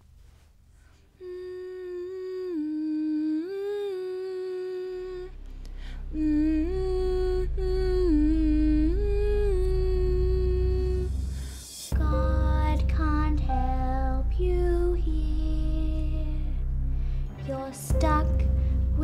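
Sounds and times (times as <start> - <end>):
low steady rumble: 0.0 - 19.0
girl humming a lullaby tune: 1.2 - 5.4.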